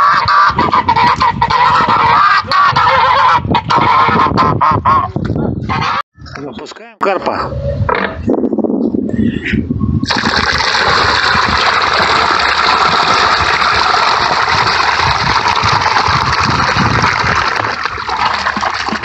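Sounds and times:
water gushing into pond: 0:10.0 - 0:19.0.

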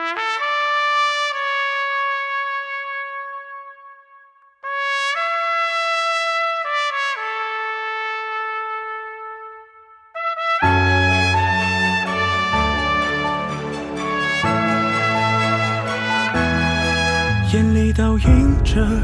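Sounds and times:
solo trumpet melody: 0:00.0 - 0:19.0.

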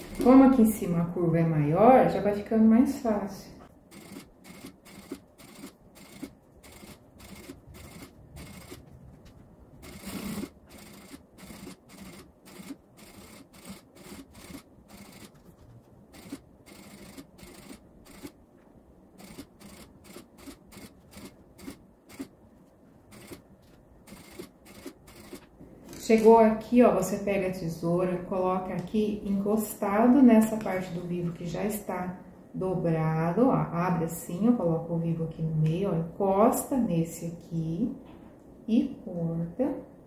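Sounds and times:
sewing machine clicking: 0:03.9 - 0:08.8, 0:09.8 - 0:15.4, 0:16.2 - 0:18.4, 0:19.2 - 0:22.3, 0:23.1 - 0:23.4, 0:24.1 - 0:25.4.

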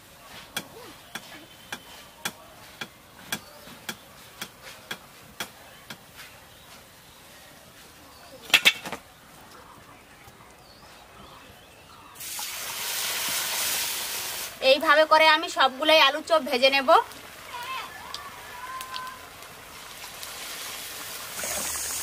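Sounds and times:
hot oil sizzling in wok: 0:12.2 - 0:15.6, 0:18.7 - 0:22.0.

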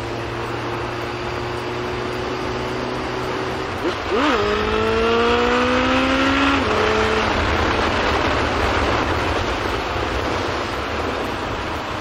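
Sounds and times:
motorcycle engine: 0:00.0 - 0:12.0
wind rushing: 0:04.1 - 0:12.0.

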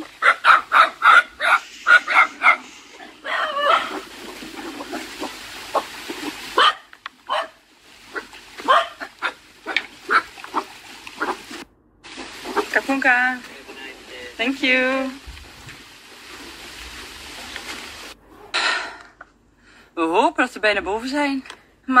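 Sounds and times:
dogs barking: 0:00.0 - 0:11.6, 0:12.2 - 0:12.9.

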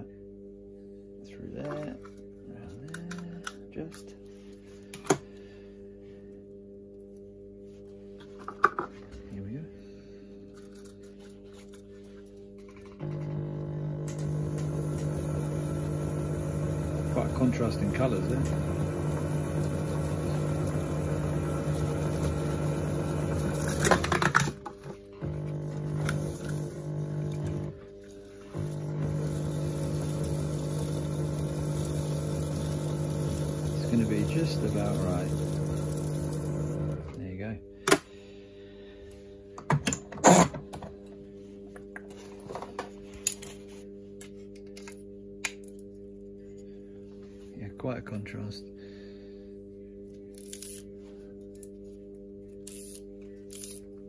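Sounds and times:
steady low hum: 0:00.0 - 0:54.0
winding machine motor humming: 0:13.0 - 0:24.2, 0:25.2 - 0:37.2.

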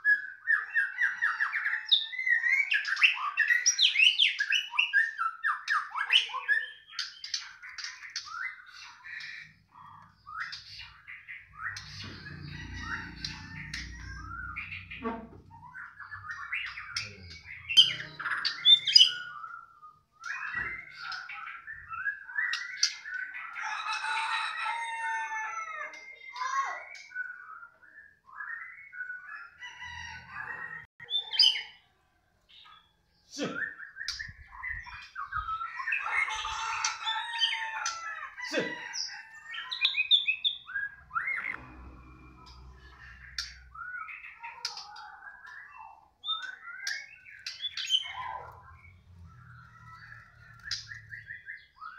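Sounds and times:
bird singing whistles and trills: 0:00.0 - 0:09.6, 0:13.0 - 0:23.4, 0:26.1 - 0:29.8, 0:32.6 - 0:36.5, 0:43.4 - 0:51.9.

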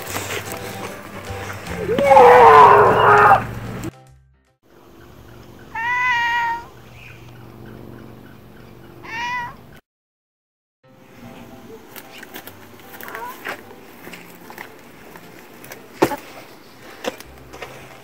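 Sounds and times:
loud shrill cry: 0:01.8 - 0:03.5, 0:05.7 - 0:06.7
cat meowing: 0:05.7 - 0:06.7, 0:09.0 - 0:09.6.

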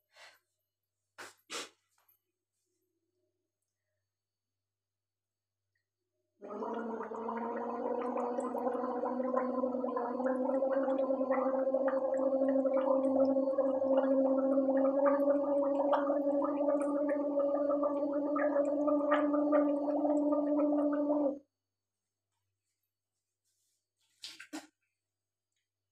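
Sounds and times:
woman gargling: 0:06.4 - 0:21.4.

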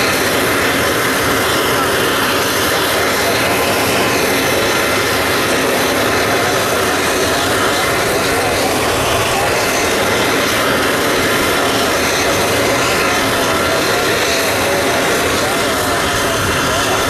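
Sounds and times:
jet engines rushing: 0:00.0 - 0:17.0.

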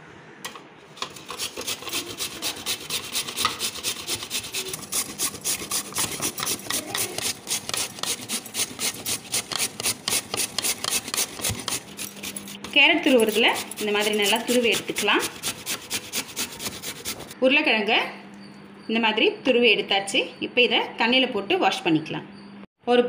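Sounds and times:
potato grating on metal grater: 0:01.0 - 0:17.4.

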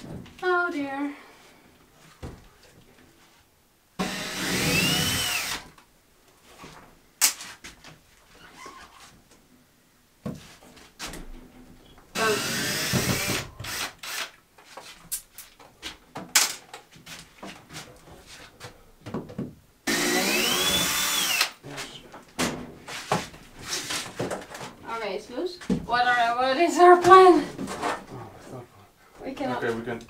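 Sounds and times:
power drill driving screws: 0:04.0 - 0:05.7, 0:12.2 - 0:14.4, 0:19.9 - 0:21.6.

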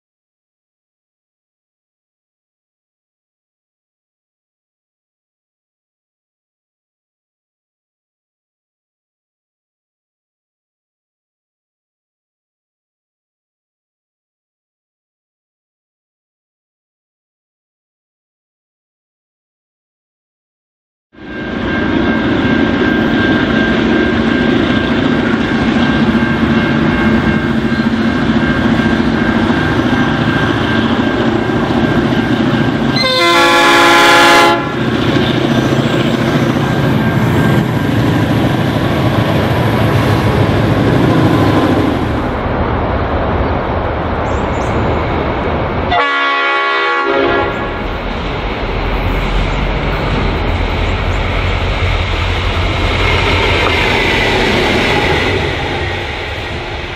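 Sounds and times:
diesel locomotive engine under load: 0:21.2 - 0:56.9
train wheel noise: 0:21.2 - 0:56.9
multi-note air horn blasts: 0:33.0 - 0:34.8, 0:45.9 - 0:47.8.

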